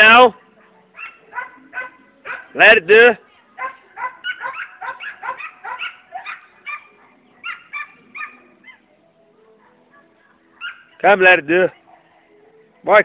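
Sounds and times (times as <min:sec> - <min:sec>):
dog yipping and barking: 0:00.4 - 0:02.6, 0:03.6 - 0:08.8, 0:09.5 - 0:11.1.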